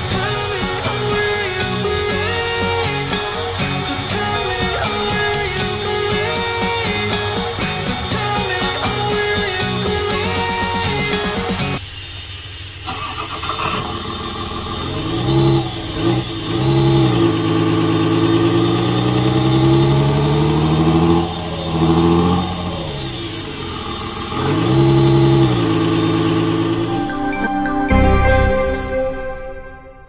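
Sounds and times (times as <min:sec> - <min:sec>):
simulated engine idling and revving: 0:11.9 - 0:26.9.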